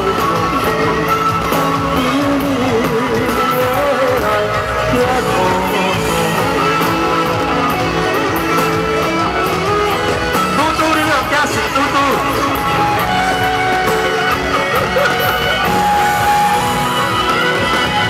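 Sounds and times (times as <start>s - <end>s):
man singing into microphone: 0.0s - 9.2s
amplified backing music with guitar: 0.0s - 18.0s.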